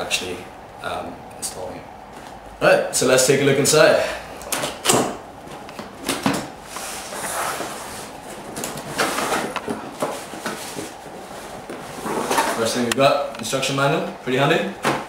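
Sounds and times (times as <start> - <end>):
cardboard scraping and rustling: 5.5 - 12.9.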